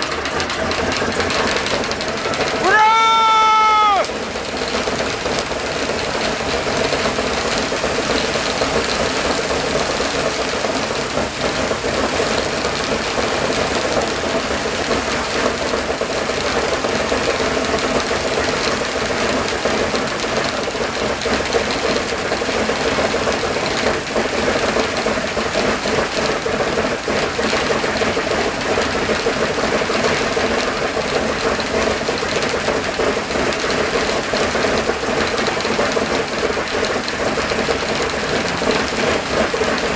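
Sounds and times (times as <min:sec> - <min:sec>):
radial aircraft engine idling: 0:00.0 - 0:39.9.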